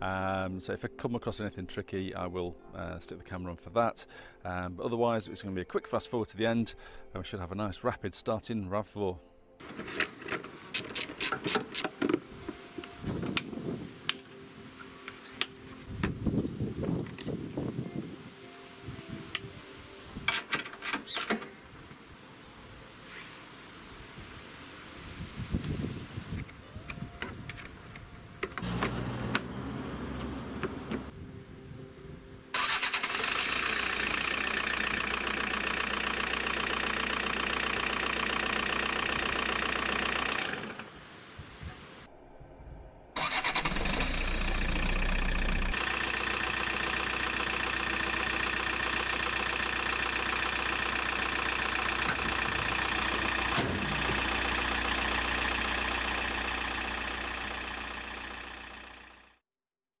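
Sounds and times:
diesel engine idling: 28.6s - 31.1s, 32.6s - 40.8s, 43.2s - 59.4s
starter motor cranking: 32.6s - 40.8s, 43.2s - 58.4s.

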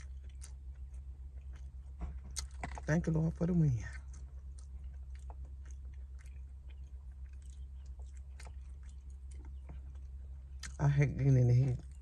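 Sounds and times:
chewing and biting chicken: 0.0s - 12.0s.

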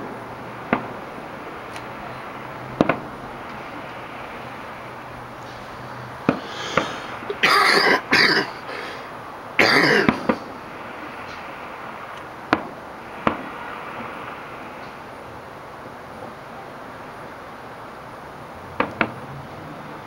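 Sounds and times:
distant fireworks bursting: 0.0s - 20.0s
person coughing: 6.6s - 9.0s, 9.6s - 10.3s.

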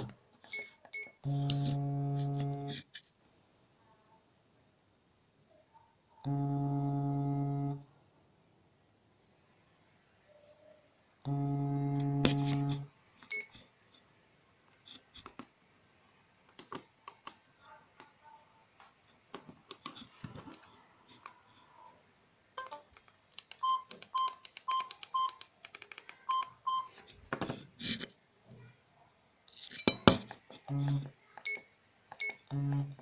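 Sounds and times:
phone vibration buzzing: 1.2s - 2.8s, 6.3s - 7.9s, 11.3s - 12.9s, 30.7s - 31.1s, 32.5s - 33.0s
keypad button clicks: 23.4s - 26.5s.

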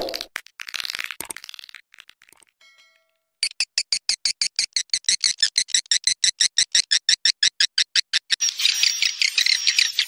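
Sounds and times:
swiftlet chirps and twittering: 3.9s - 10.0s.

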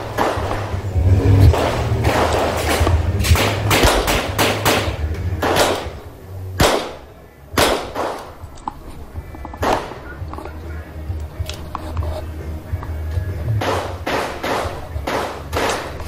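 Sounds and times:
revolver gunshots: 0.0s - 0.8s, 1.5s - 8.4s, 9.6s - 10.1s, 13.6s - 16.0s.

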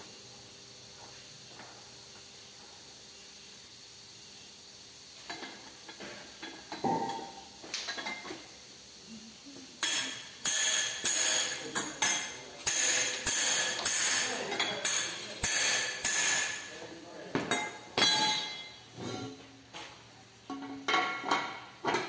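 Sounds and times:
steel tools clanking and scraping: 9.8s - 16.7s, 17.5s - 19.4s.

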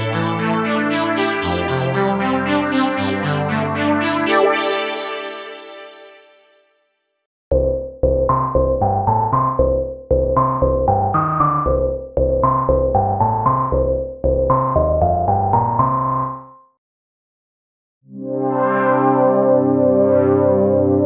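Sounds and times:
synth bass line: 7.5s - 16.6s
synthesizer plucked notes: 7.5s - 16.6s, 18.1s - 21.0s.

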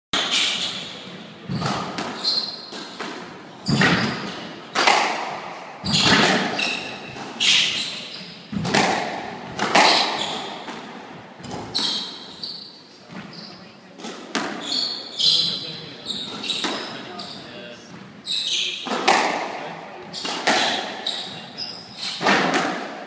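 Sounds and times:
shoes squeaking on wooden floor: 0.2s - 4.6s, 5.8s - 19.2s, 20.1s - 22.4s
squash ball hits: 1.5s - 7.8s, 8.5s - 12.1s, 14.0s - 14.7s, 18.8s - 23.0s.

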